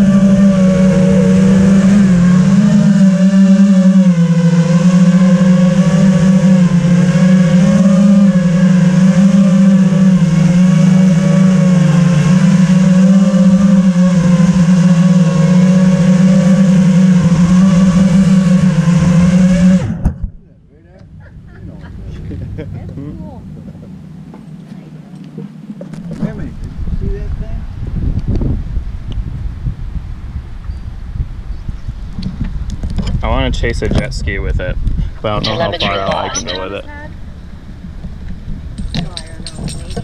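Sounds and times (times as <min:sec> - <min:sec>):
quadcopter propellers whirring: 0:00.0 - 0:20.1, 0:35.0 - 0:40.0.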